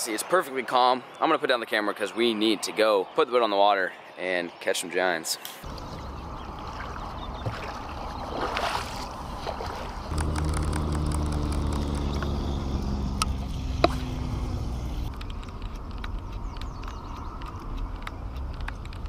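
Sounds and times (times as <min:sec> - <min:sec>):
boat motor humming: 0:05.7 - 0:18.6
sharp clicks: 0:10.1 - 0:14.1, 0:15.0 - 0:19.0.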